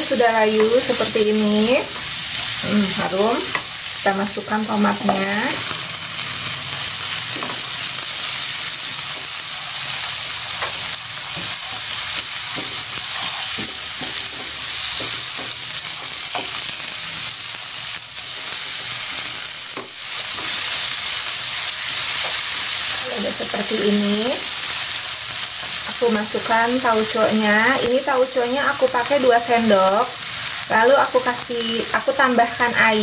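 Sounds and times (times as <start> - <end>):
vegetables sizzling in hot oil: 0.0 - 33.0
spatula scraping and tapping pan: 10.6 - 16.8, 19.7 - 20.7.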